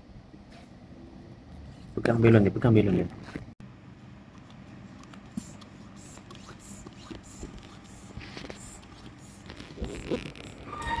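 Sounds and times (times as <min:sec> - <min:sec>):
hand pump inflating balloon: 0:05.4 - 0:11.0.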